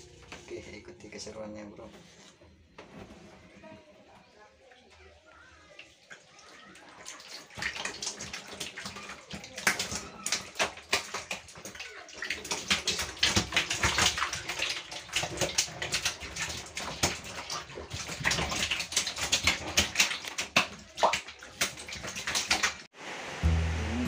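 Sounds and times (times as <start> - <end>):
fish splashing in water: 5.6 - 22.9.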